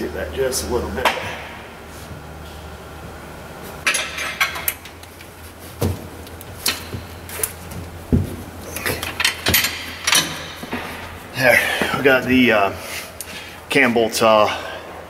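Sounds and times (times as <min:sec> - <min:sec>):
steady low hum: 0:00.0 - 0:15.0
wrenches clinking on bolts: 0:08.8 - 0:10.8.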